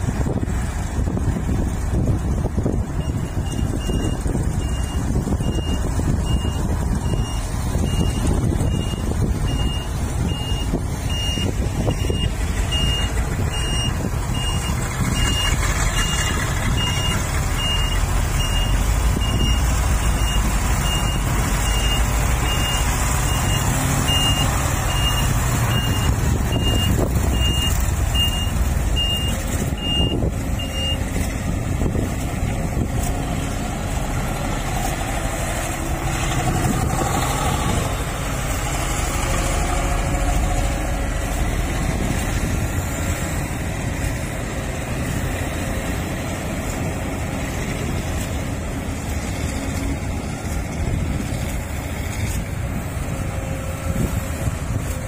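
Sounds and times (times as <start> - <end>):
heavy diesel machinery running: 0.0 - 55.0
reversing alarm beeping: 3.0 - 31.1.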